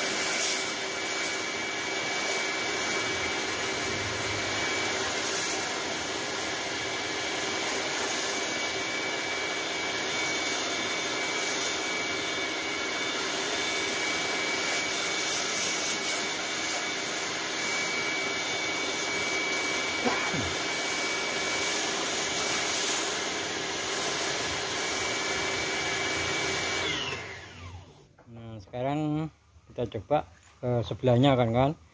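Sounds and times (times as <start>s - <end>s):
water jet hissing: 0.0s - 6.5s, 18.7s - 27.4s
pressure washer motor whine: 0.0s - 28.2s.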